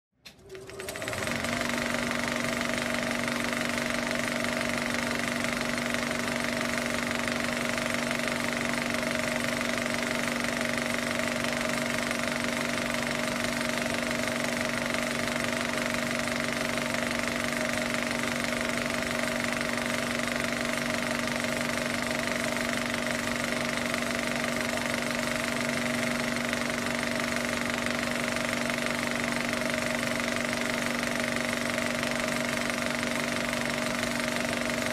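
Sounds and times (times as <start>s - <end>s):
film projector whirring: 0.2s - 34.9s.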